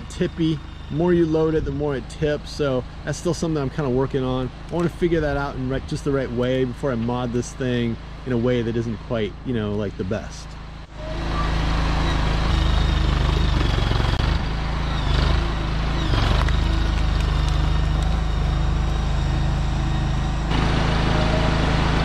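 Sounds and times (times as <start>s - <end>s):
short high squeals: 0.0s - 1.6s, 10.9s - 22.0s
mini skid steer engine running: 0.0s - 22.0s.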